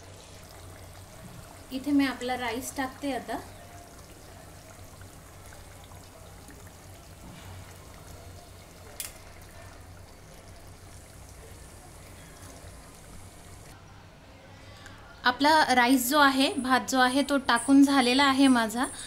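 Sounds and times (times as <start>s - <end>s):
curry simmering in a pot: 0.0s - 13.8s.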